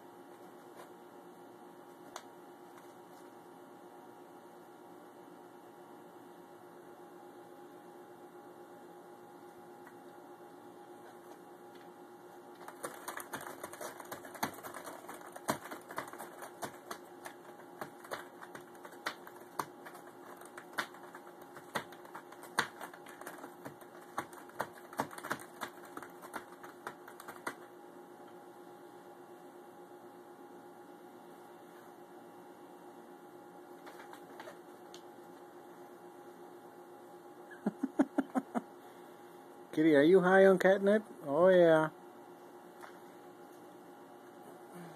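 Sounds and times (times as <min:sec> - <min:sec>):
faint hum: 0:00.0 - 0:44.9
cardboard crackling: 0:12.6 - 0:27.7.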